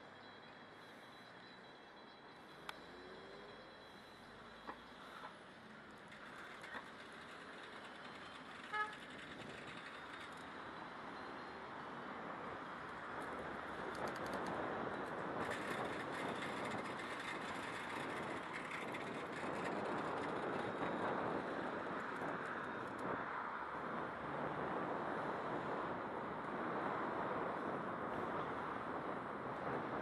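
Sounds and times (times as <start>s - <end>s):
bicycle tyres rolling: 5.8s - 10.9s, 13.9s - 23.2s.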